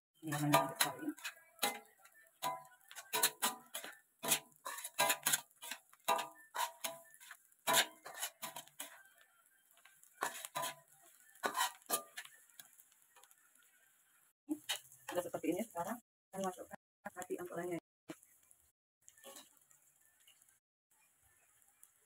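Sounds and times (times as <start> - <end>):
metal spatula clinking on wok: 0.3 - 8.8.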